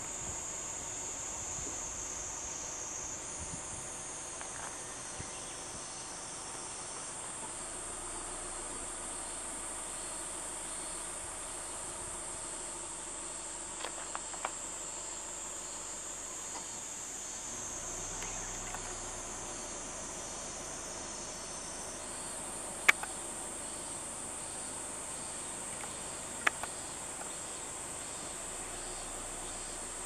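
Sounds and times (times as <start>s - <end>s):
insects chorus: 0.0s - 30.0s
faint clicks: 25.7s - 27.4s.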